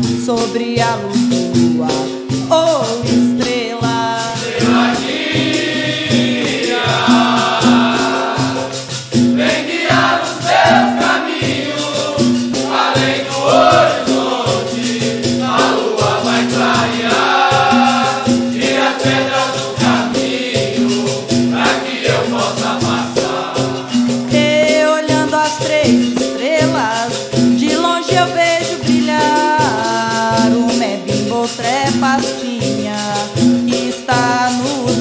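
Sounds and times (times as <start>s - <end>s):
berimbau and percussion: 0.0s - 35.0s
shaken rattle: 0.0s - 35.0s
voices singing in chorus: 4.2s - 25.7s.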